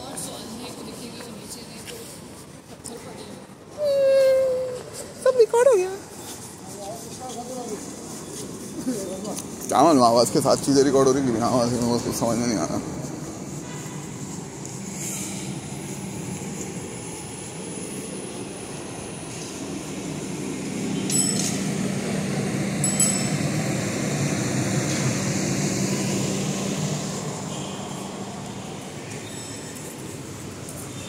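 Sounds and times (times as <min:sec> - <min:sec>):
city street hum: 0:00.0 - 0:31.0
short metallic clinks: 0:21.1 - 0:21.7.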